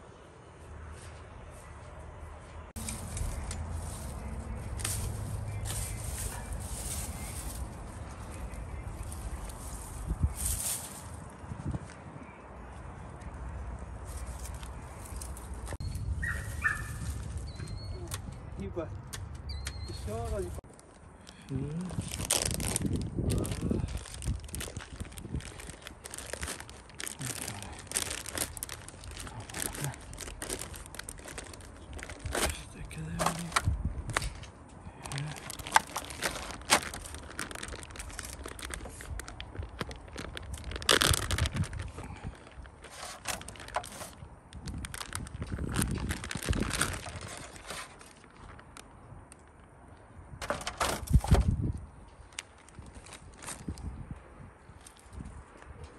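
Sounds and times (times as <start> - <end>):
plastic bag crinkling: 21.9 - 33.6, 35.0 - 48.8
aluminium foil pan crackling: 35.2 - 48.8.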